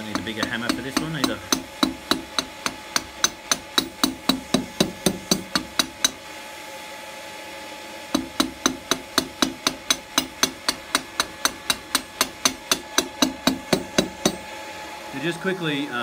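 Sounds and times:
hammer striking hot steel: 0.0 - 6.2, 8.1 - 14.5
steady hum: 0.0 - 16.0.

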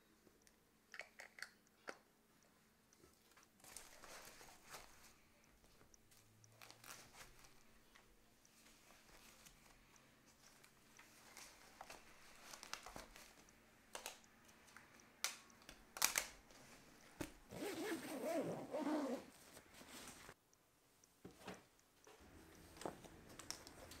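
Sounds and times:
fabric rustling: 16.7 - 20.4
zipper on bag: 17.5 - 19.3.

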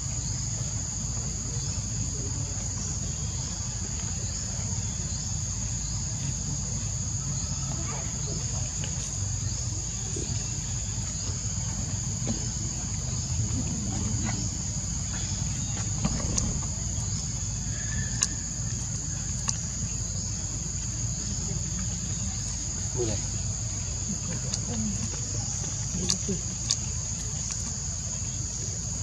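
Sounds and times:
insect chirping: 0.0 - 29.0
low steady rumble: 0.0 - 29.0
sharp ticks: 24.2 - 27.8.

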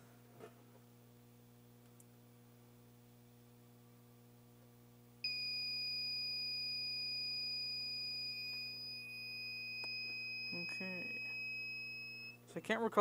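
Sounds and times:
high-pitched alarm beep: 5.3 - 12.4.

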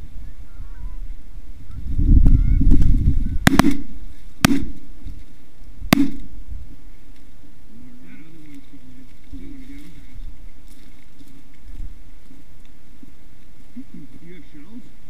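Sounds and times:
goose honking faintly: 0.2 - 1.1, 7.7 - 10.6
shotgun blasts: 3.4 - 4.8, 5.9 - 6.3.

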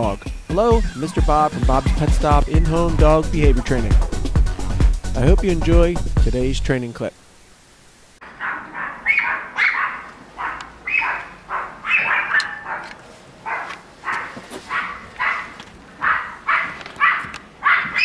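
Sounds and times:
small dog barking rapidly: 8.4 - 18.0.

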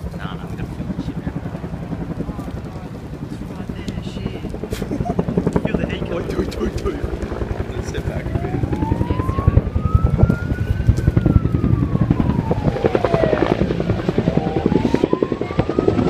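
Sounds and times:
helicopter rotor blade slaps: 2.4 - 16.0
siren wailing: 4.0 - 16.0.

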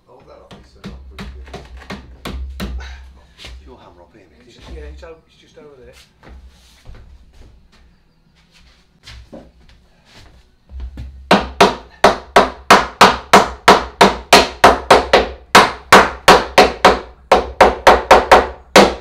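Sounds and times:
claw hammer striking timber: 0.5 - 2.8, 11.3 - 19.0.

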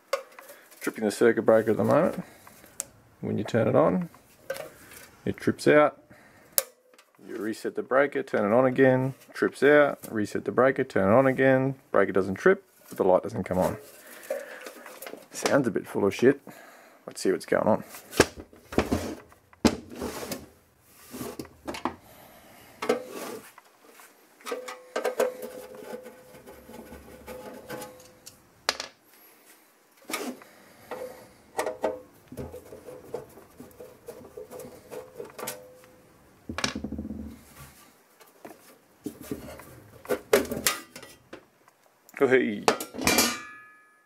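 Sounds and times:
clicks and knocks of metal box: 24.4 - 26.5, 40.0 - 41.2.

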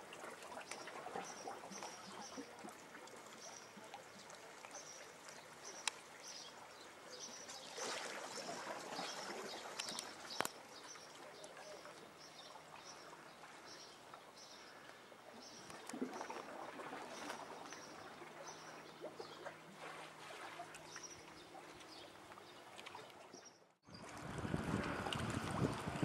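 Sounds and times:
soft wash of water: 0.0 - 26.0
faint clicks: 4.3 - 6.0.

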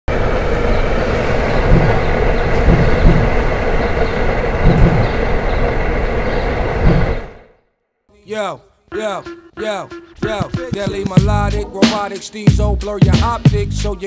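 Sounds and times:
skateboard thumps: 1.7 - 3.4, 4.6 - 5.1.

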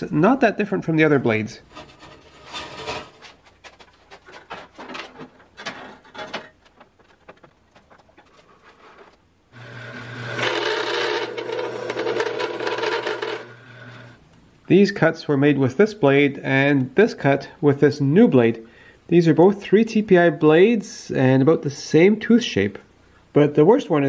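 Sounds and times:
bandsaw cutting wood: 9.6 - 14.2
bandsaw humming: 9.6 - 14.2.

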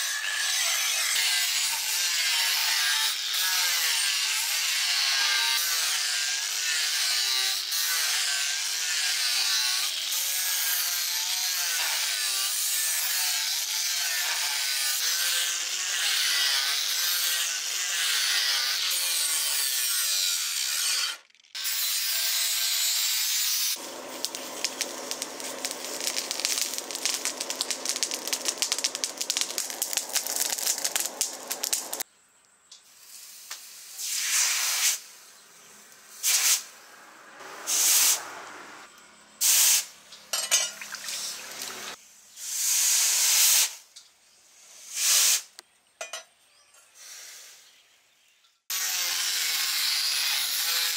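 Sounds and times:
angle grinder grinding steel: 0.0 - 32.0, 48.7 - 50.9
dense steady crackle: 23.8 - 32.0.

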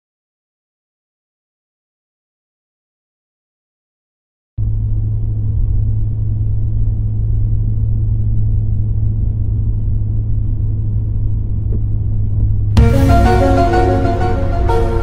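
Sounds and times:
car engine and road noise: 4.6 - 14.8.

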